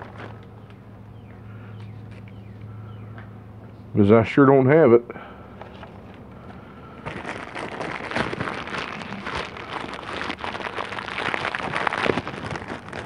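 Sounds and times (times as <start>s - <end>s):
plastic bag crinkling: 5.8s - 13.0s.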